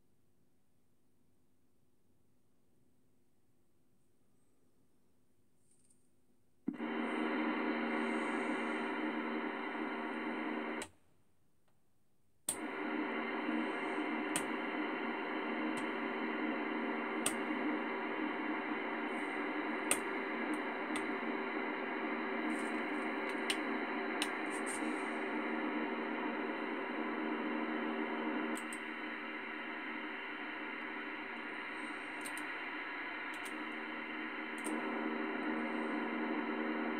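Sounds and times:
radio static: 0:06.7 - 0:10.8, 0:12.5 - 0:36.9
sharp clicks: 0:12.5 - 0:26.5, 0:28.1 - 0:29.2, 0:30.1 - 0:33.8.

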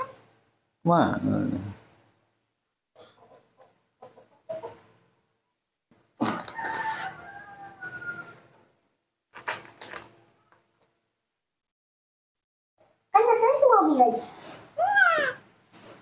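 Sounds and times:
rooster crowing: 0:06.2 - 0:08.5.

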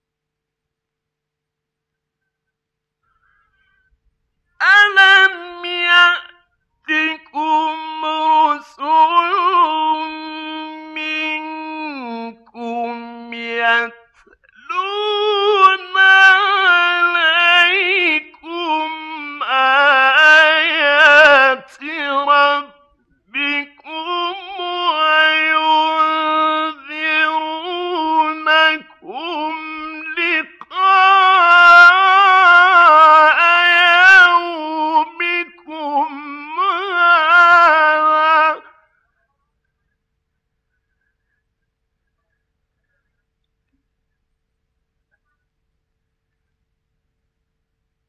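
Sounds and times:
man chanting melodically: 0:04.6 - 0:38.9.

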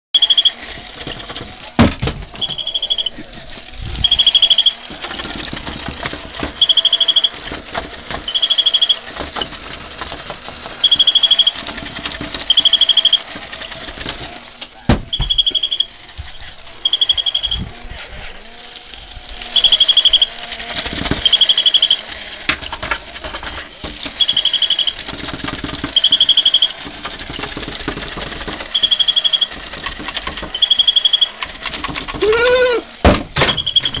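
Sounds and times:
toy electronic peeping: 0:00.2 - 0:01.3, 0:02.3 - 0:05.3, 0:06.4 - 0:07.6, 0:08.2 - 0:09.6, 0:10.7 - 0:11.8, 0:12.4 - 0:14.0, 0:14.9 - 0:17.8, 0:19.1 - 0:22.4, 0:24.0 - 0:27.6, 0:28.4 - 0:29.7, 0:30.4 - 0:31.5, 0:33.4 - 0:34.0
small motor whirring: 0:00.2 - 0:34.0
rising and falling squeal: 0:02.4 - 0:03.1.

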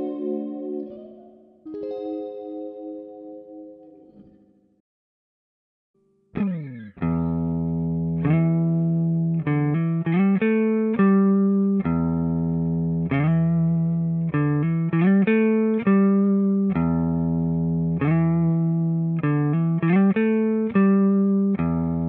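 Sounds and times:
plucked string melody: 0:00.0 - 0:04.6, 0:06.4 - 0:22.0
low sustained bass tone: 0:07.0 - 0:10.5.

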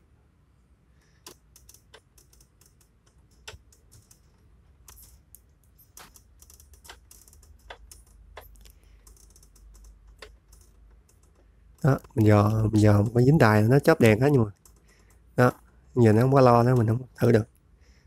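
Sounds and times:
radio tuning wheel clicks: 0:05.9 - 0:17.0.

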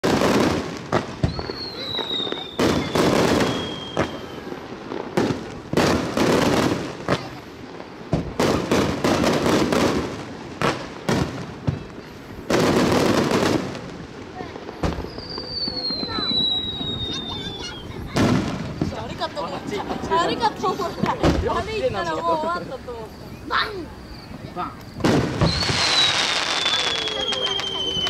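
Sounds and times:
descending firework whistle: 0:00.0 - 0:05.8, 0:14.7 - 0:19.2, 0:23.0 - 0:28.0
firework bursts banging: 0:00.0 - 0:28.0
fireworks crackling: 0:00.0 - 0:28.0.

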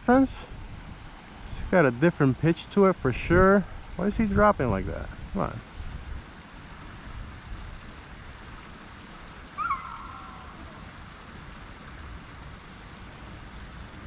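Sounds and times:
wind rumble on microphone: 0:03.0 - 0:08.6
high-pitched animal call: 0:09.6 - 0:10.9.

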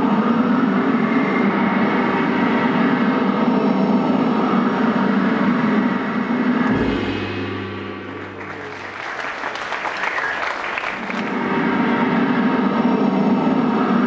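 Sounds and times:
deep ringing stroke: 0:06.7 - 0:09.4
stage show music: 0:06.7 - 0:12.5
audience applause: 0:08.2 - 0:11.4.

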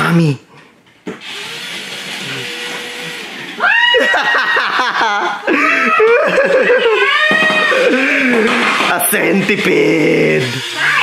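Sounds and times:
small electric motor whirring: 0:01.2 - 0:03.6, 0:07.0 - 0:11.0
people shrieking and laughing: 0:03.6 - 0:08.8.

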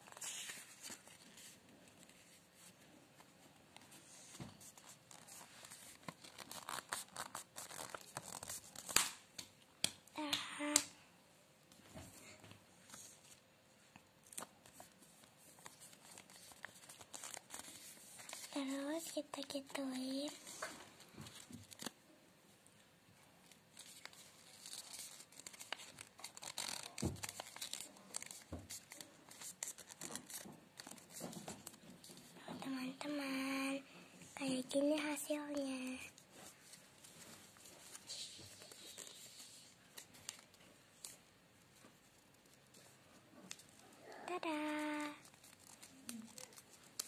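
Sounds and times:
paper rustling and crinkling: 0:00.0 - 0:09.2, 0:14.2 - 0:22.0, 0:23.4 - 0:32.3, 0:36.1 - 0:47.0.

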